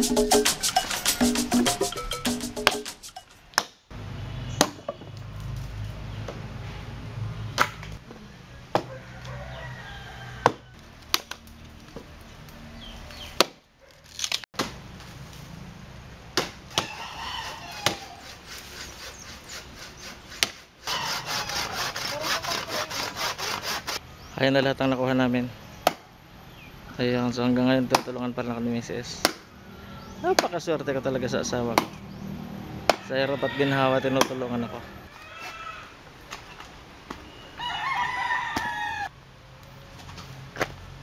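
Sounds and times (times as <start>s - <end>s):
handsaw cutting log: 16.9s - 24.0s.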